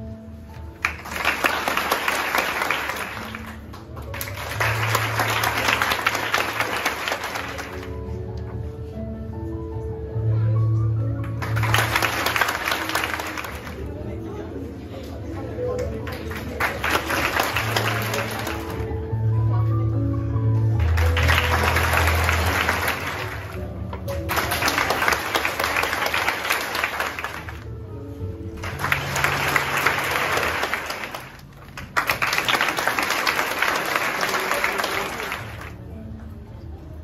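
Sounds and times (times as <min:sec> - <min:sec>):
background music: 0:00.0 - 0:37.0
audience applauding: 0:00.8 - 0:08.0, 0:11.2 - 0:14.0, 0:16.0 - 0:19.0, 0:20.8 - 0:27.8, 0:28.6 - 0:35.8.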